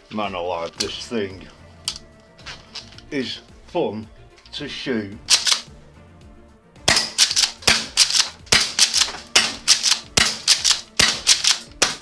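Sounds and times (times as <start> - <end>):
shotgun pump clacking: 5.3 - 5.7, 6.9 - 12.0
airsoft shotgun shots: 6.9 - 12.0.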